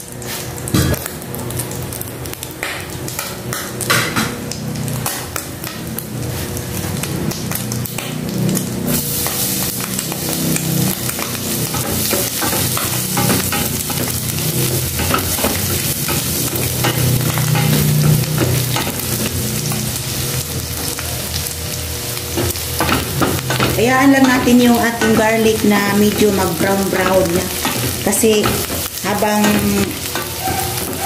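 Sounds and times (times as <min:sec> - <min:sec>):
garlic sizzling in oil: 0:00.0 - 0:31.0.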